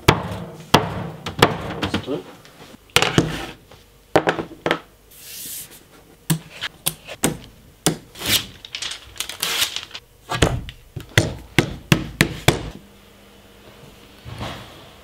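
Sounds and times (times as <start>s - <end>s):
tape tearing off a roll: 8.1s - 10.0s.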